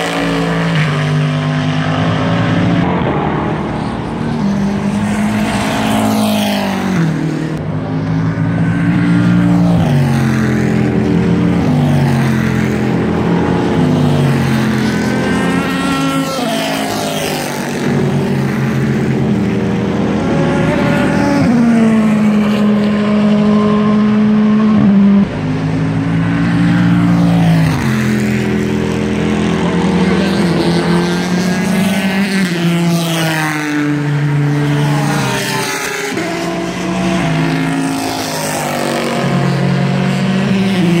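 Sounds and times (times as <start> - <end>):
race car engines passing: 0.0 - 41.0.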